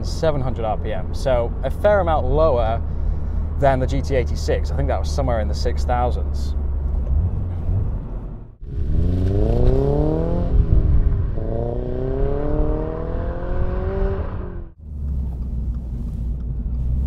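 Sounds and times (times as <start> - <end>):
car engine accelerating hard: 6.6 - 15.7.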